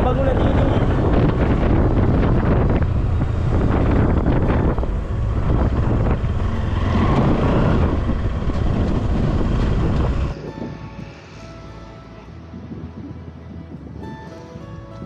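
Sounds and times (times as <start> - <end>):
wind buffeting microphone: 0.0 - 11.6, 12.4 - 15.0
motorcycle engine running: 0.2 - 11.7.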